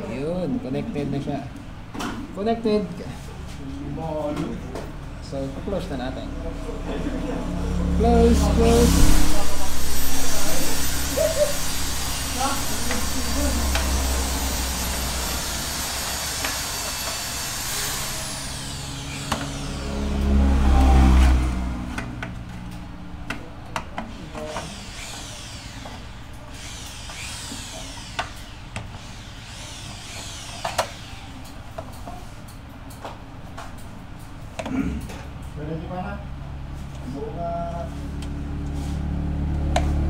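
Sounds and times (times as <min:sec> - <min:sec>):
low rumble: 0:07.0 - 0:16.3.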